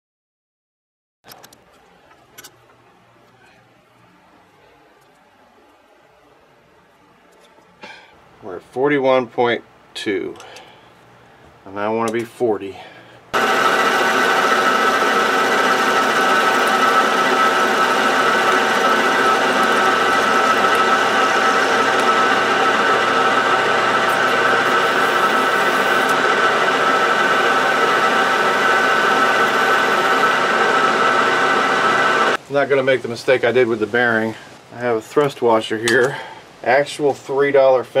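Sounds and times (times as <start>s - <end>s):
metal lathe whining: 13.4s - 32.4s.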